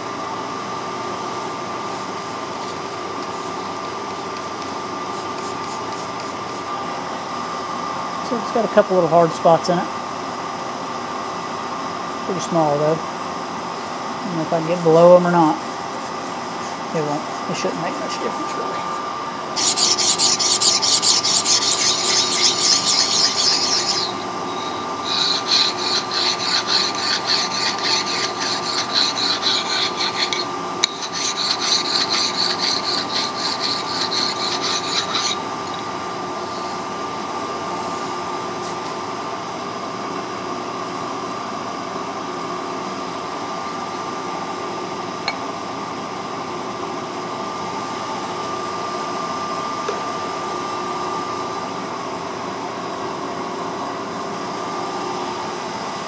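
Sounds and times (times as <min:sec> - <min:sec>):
machine hum: 0:16.6 - 0:37.3
file rasping on metal: 0:19.6 - 0:35.9.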